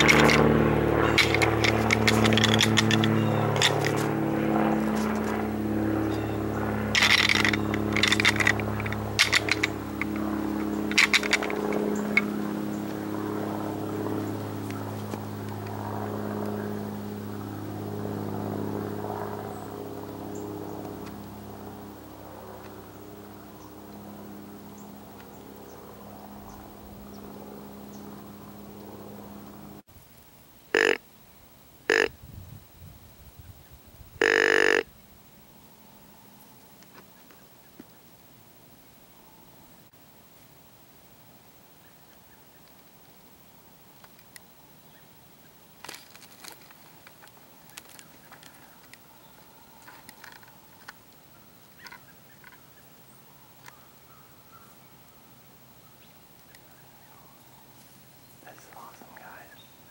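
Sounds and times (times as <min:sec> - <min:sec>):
sharp scrapes or clicks: 0:00.0 - 0:00.4, 0:01.1 - 0:04.1, 0:07.0 - 0:10.2, 0:10.9 - 0:11.7
distant engine droning: 0:00.0 - 0:29.9, 0:30.7 - 0:32.2, 0:34.2 - 0:38.0, 0:44.0 - 0:59.9.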